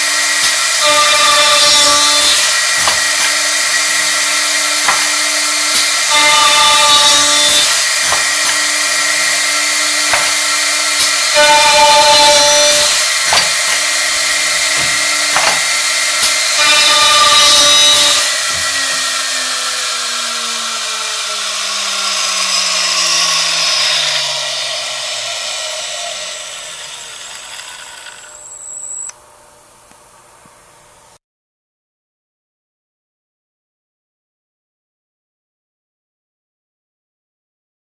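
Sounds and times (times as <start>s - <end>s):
drilling machine motor whine: 0.0s - 29.2s
sharp machine knocks: 0.4s - 19.4s.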